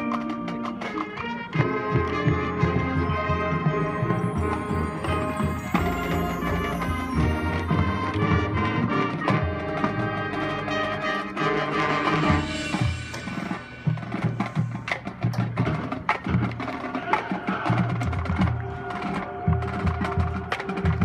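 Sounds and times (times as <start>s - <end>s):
brass chords: 0.0s - 15.1s
rhythmic percussion hits: 0.0s - 21.0s.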